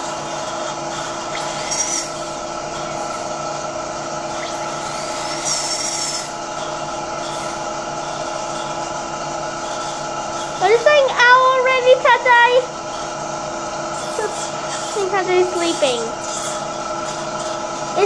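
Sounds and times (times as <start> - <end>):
dental suction humming: 0.0 - 18.0.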